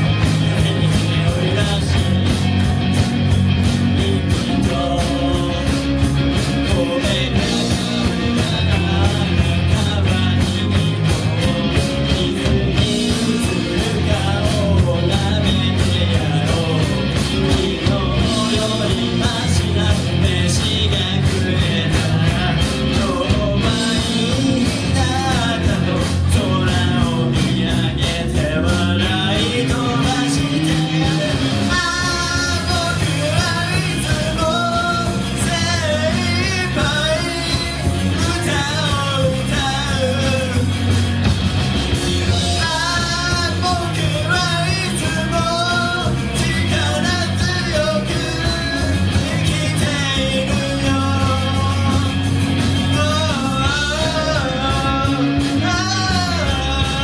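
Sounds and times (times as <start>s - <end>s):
bass guitar: 0.0s - 57.0s
drums: 0.0s - 57.0s
electric guitars: 0.0s - 57.0s
person singing lead: 11.4s - 40.7s.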